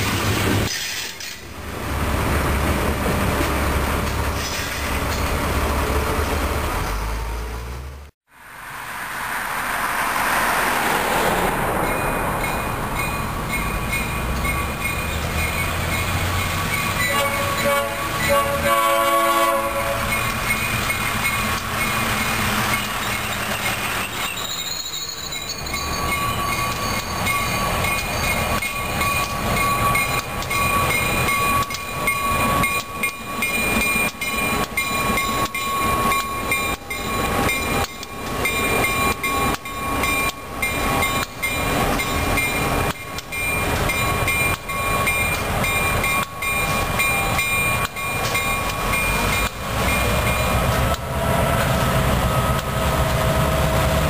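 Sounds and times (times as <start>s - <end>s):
diesel locomotives passing: 0.0s - 54.0s
locomotive air horn blast: 17.0s - 20.1s
wheels clacking over rail joints: 20.0s - 54.0s.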